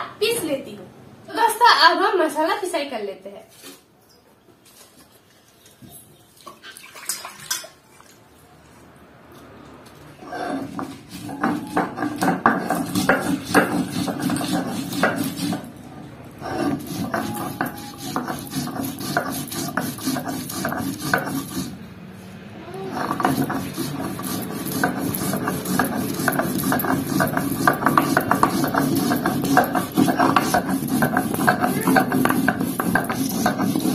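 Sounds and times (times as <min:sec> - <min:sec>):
grinding stone scraping on stone slab: 0:10.2 - 0:15.8, 0:16.4 - 0:21.8, 0:22.7 - 0:33.9.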